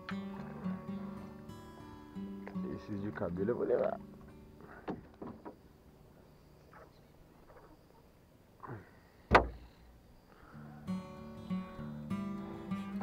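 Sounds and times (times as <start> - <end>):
acoustic guitar strumming: 0.0 - 4.7, 10.5 - 13.0
sharp knock with low thump: 9.3 - 9.6.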